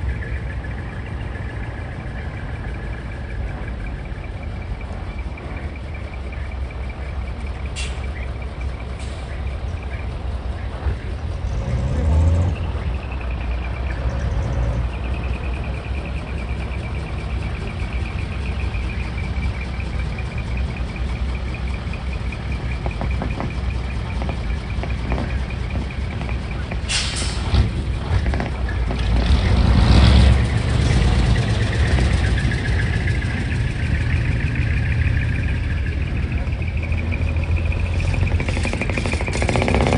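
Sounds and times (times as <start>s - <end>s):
diesel trucks rumbling: 0.0s - 39.9s
air brake hiss: 7.8s - 8.1s, 26.9s - 27.5s.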